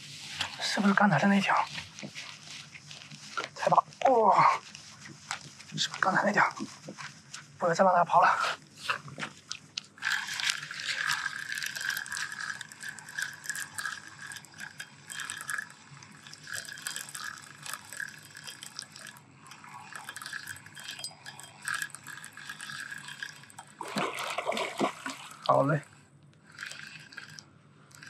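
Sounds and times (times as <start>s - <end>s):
fishing reel clicking and whirring: 9.9s - 25.8s, 26.4s - 28.0s.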